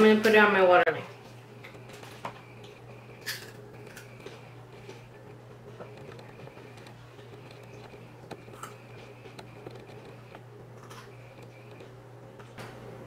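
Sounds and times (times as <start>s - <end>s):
low hum: 1.1s - 13.0s
faint clicks and ticks: 1.6s - 12.0s.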